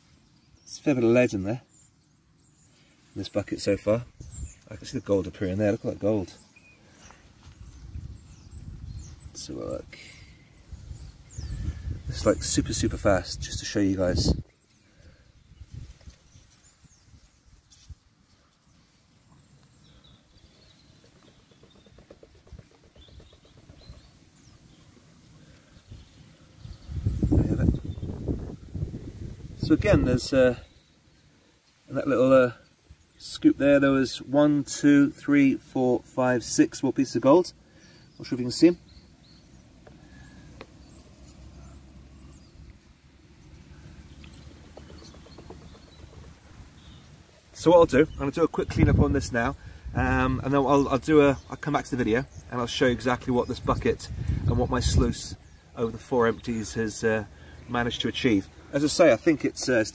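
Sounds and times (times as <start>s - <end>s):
faint bird chirps: 0.0s - 13.0s, 13.7s - 28.5s, 37.3s - 42.8s, 43.4s - 59.2s.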